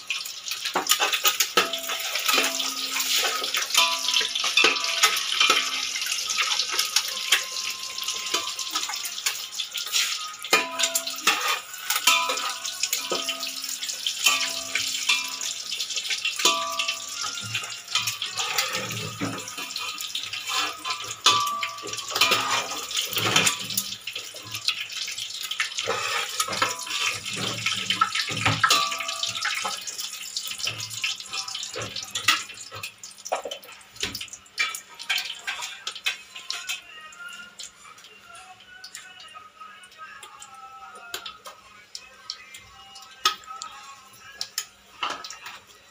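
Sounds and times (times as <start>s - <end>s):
oil sizzling in a pot: 0.0s - 45.9s
metal spoon scraping a pot: 0.8s - 15.6s, 16.3s - 23.9s, 25.8s - 29.9s.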